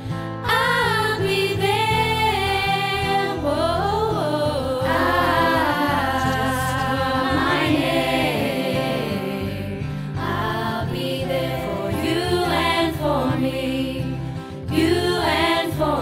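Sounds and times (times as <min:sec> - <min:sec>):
choir singing slow notes: 0:00.4 - 0:16.0
sustained low accompaniment: 0:04.7 - 0:11.8.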